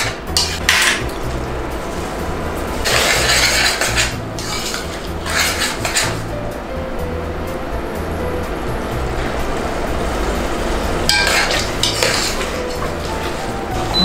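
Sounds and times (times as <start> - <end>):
metal spoon scraping pot: 0.0 - 1.1, 2.8 - 6.3, 11.1 - 13.4.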